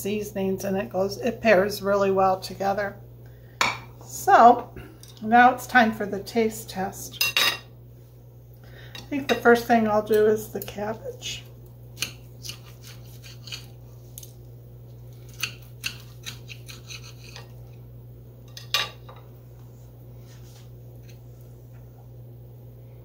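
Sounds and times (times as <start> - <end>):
cutlery scraping on plate: 12.0 - 13.7, 15.3 - 17.5.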